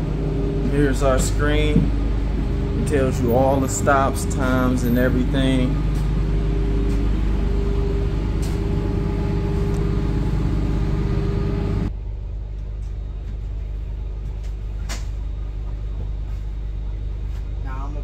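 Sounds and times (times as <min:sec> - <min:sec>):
steady tones: 0:00.0 - 0:11.9
bus engine idling hum: 0:00.0 - 0:18.0.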